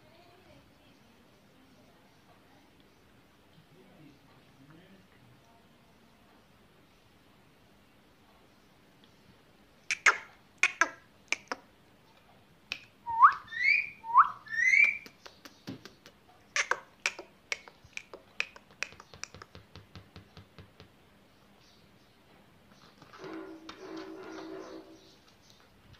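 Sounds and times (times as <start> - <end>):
parakeet rising whistles: 13.1 - 15.0
parakeet clicking: 14.7 - 21.0.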